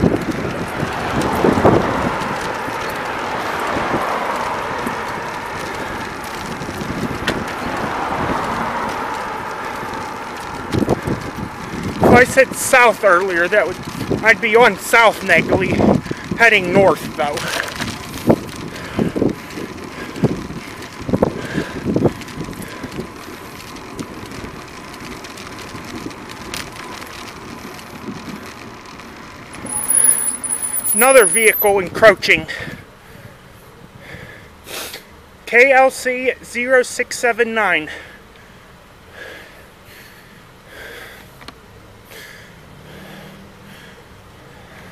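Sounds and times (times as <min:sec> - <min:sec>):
wind on microphone: 0:00.0 - 0:02.5, 0:10.6 - 0:12.2
bicycle road noise: 0:00.0 - 0:44.9
light traffic: 0:00.0 - 0:44.9.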